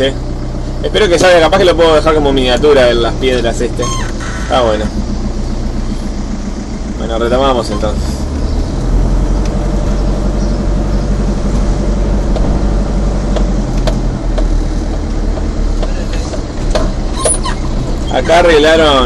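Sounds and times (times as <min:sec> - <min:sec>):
vehicle engine and road hum: 0:00.0 - 0:19.0.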